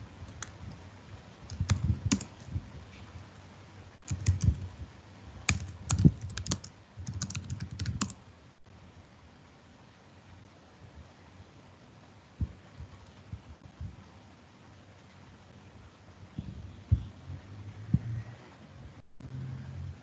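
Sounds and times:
computer keyboard typing: 0:00.3 - 0:00.8, 0:01.5 - 0:02.5, 0:04.0 - 0:04.8, 0:05.4 - 0:08.2.

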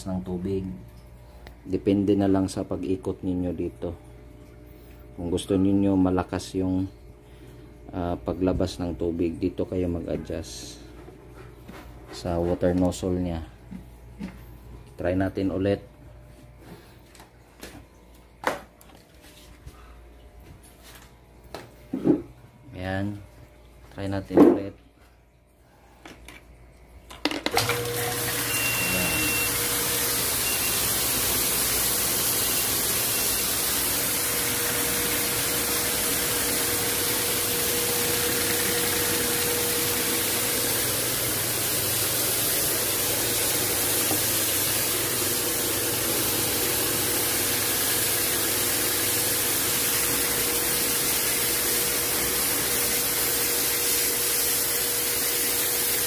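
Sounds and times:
pressure washer humming: 0:27.5 - 0:56.0
water jetting from spray lance: 0:28.2 - 0:56.0.

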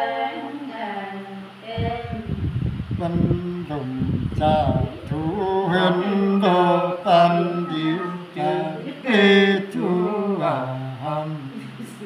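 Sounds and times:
man singing unaccompanied: 0:02.9 - 0:11.9.

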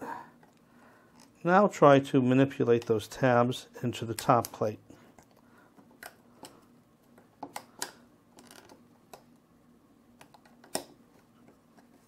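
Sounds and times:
plastic parts clicking and tapping: 0:04.1 - 0:09.3.

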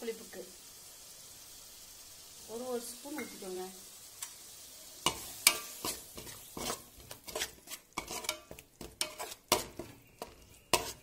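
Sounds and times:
sauce sizzling: 0:00.0 - 0:11.0
spoon scraping metal pot: 0:05.1 - 0:11.0.

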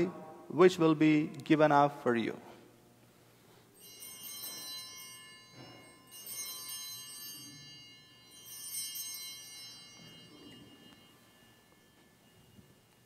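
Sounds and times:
altar bells ringing: 0:03.2 - 0:13.0.

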